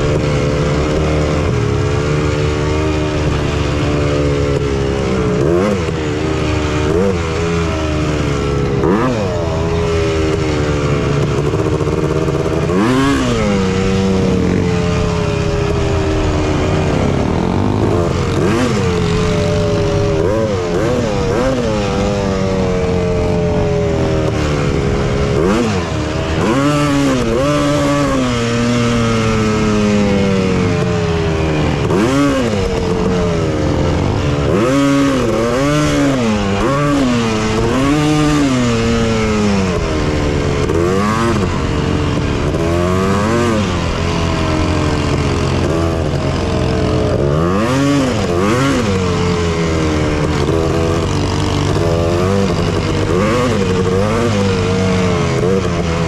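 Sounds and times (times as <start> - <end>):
two-stroke engine revving: 0.0 - 56.0.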